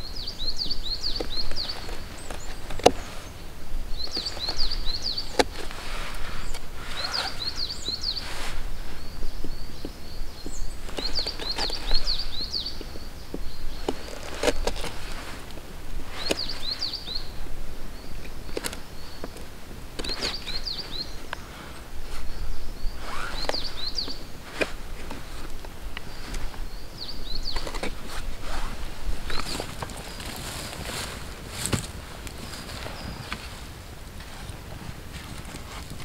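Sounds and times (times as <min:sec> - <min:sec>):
songbird trilling: 0:00.0 - 0:15.4, 0:16.0 - 0:30.7
knife shaving a stick: 0:13.8 - 0:16.7.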